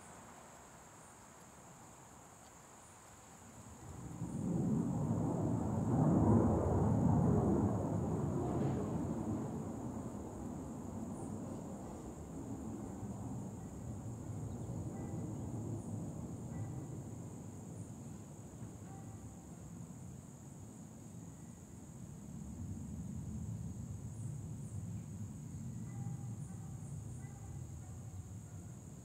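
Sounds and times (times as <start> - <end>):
distant jet rumble: 3.8 - 18.8.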